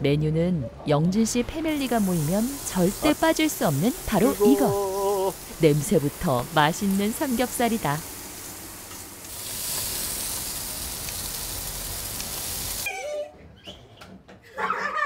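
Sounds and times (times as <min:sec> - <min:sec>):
meat sizzling on a grill: 0:01.6 - 0:12.9.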